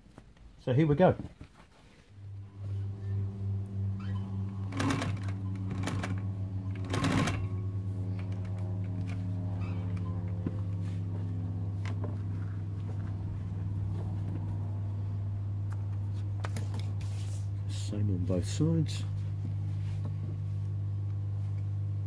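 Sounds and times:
sewing machine running: 4.0s - 9.2s
sewing machine clacks: 6.8s - 7.5s.

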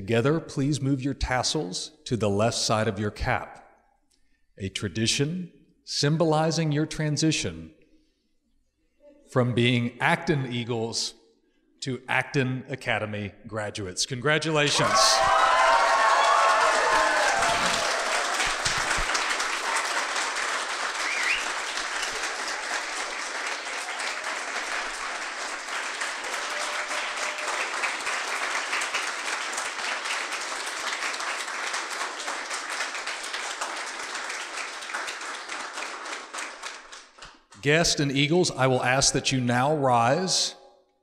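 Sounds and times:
voices calling out: 14.7s - 17.9s
audience applauding: 14.7s - 37.4s.

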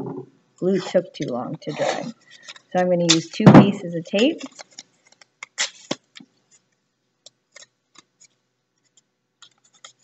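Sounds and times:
tape ripping off a roll: 4.4s - 6.2s.

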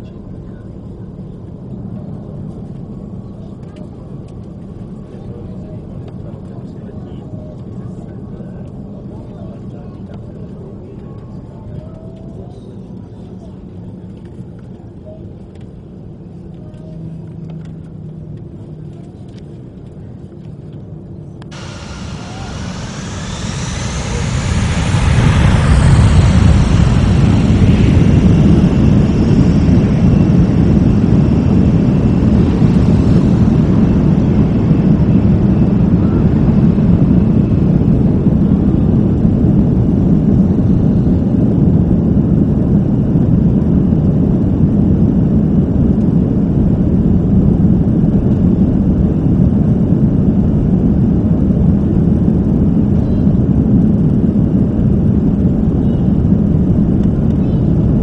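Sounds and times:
jet engines spooling up: 21.4s - 46.6s.

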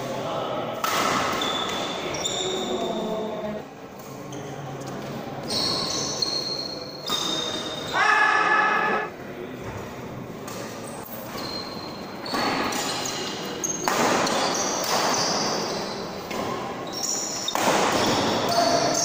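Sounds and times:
rackets hitting shuttlecock: 0.8s - 1.8s, 13.8s - 15.4s, 17.4s - 19.0s
shoes squeaking on court floor: 1.4s - 2.8s, 5.4s - 8.0s, 11.1s - 19.0s.

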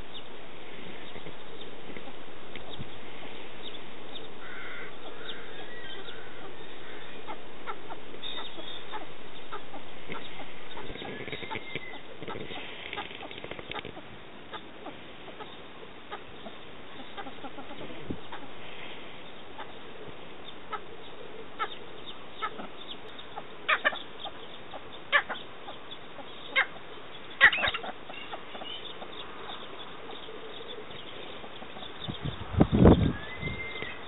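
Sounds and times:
pheasants clucking: 3.6s - 34.0s.

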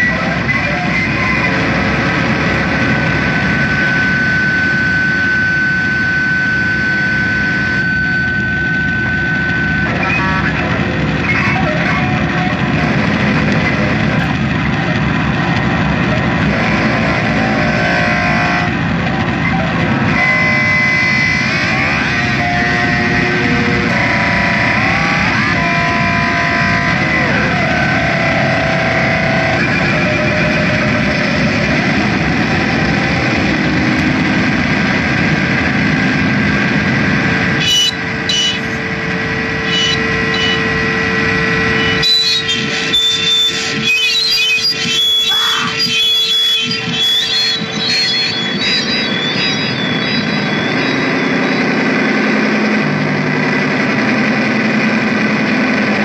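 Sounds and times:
harsh noise music through amplifiers: 0.0s - 56.0s
high whistling tones: 2.6s - 10.4s, 37.6s - 38.8s, 39.6s - 51.9s.

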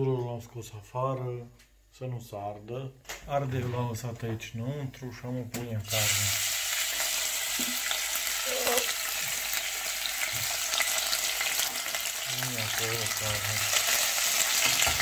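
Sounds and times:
meat sizzling in oil: 5.9s - 15.0s.

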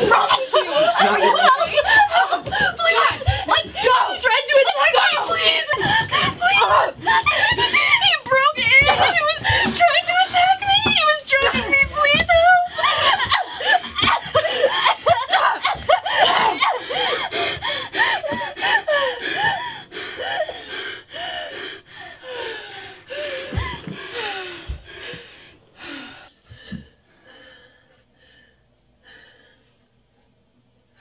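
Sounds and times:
faint breaths: 16.7s - 31.0s.

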